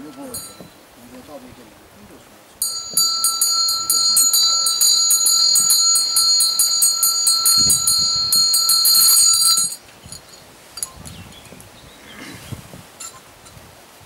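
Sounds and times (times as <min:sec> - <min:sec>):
hand bell rung rapidly: 0:00.3 - 0:00.6, 0:02.6 - 0:10.4.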